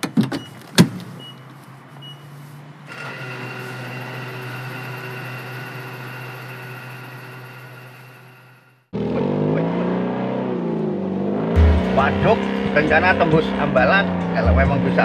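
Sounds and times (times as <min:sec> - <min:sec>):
sharp hit: 0:11.5 - 0:13.3.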